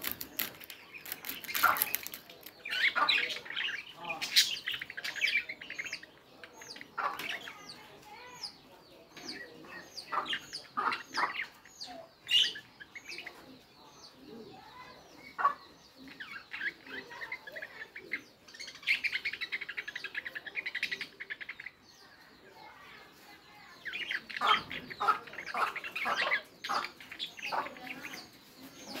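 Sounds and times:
budgerigars chirping: 0:00.8 - 0:14.2, 0:23.8 - 0:29.0.

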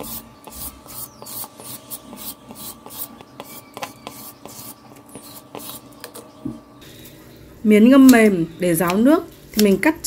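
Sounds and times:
grater scraping carrot: 0:00.0 - 0:05.9.

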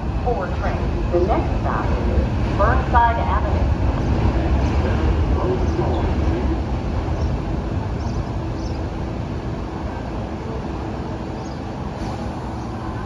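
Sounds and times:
subway train rumbling: 0:00.0 - 0:13.0.

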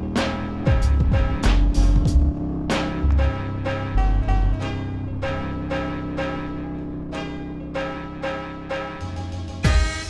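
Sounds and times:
held low chord: 0:00.0 - 0:10.0.

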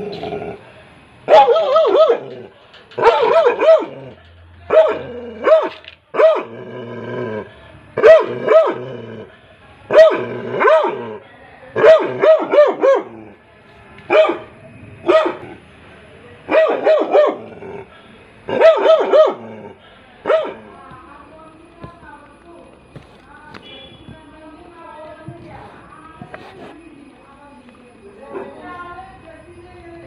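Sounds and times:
dog barking: 0:01.3 - 0:02.4, 0:03.0 - 0:06.5, 0:08.0 - 0:08.8, 0:09.9 - 0:11.2, 0:11.8 - 0:13.2, 0:14.1 - 0:15.5, 0:16.5 - 0:17.5, 0:18.5 - 0:19.5, 0:20.2 - 0:20.7.

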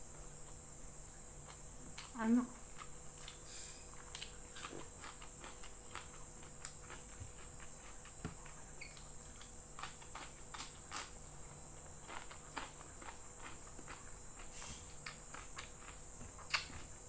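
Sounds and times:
faint steady hiss: 0:00.0 - 0:17.0
chewing and lip smacks: 0:12.0 - 0:17.0.

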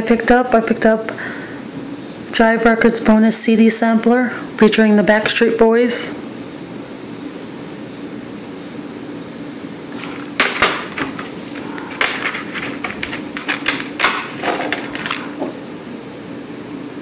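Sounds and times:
plastic cases clicking and clattering: 0:10.0 - 0:15.6.

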